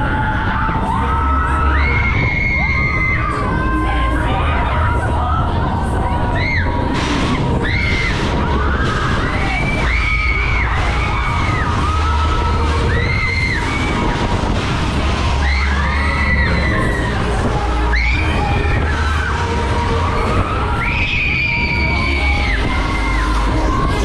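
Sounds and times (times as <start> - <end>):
rushing air rumble: 0.0 - 24.0
riders screaming: 15.3 - 17.3.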